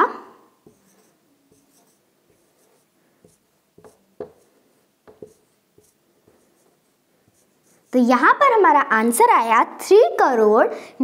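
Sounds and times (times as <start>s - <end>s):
marker writing on whiteboard: 0.6s - 8.4s.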